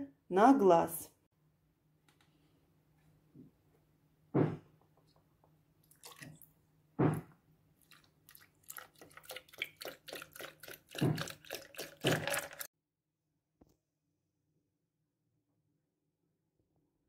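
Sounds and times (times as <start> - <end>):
milk pouring onto ice: 7.8 - 12.7.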